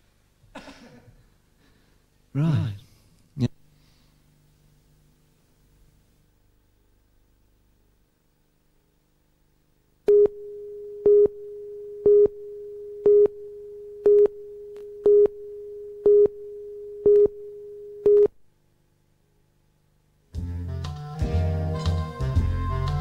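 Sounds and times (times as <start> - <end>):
countdown pips: 10.1 - 18.3.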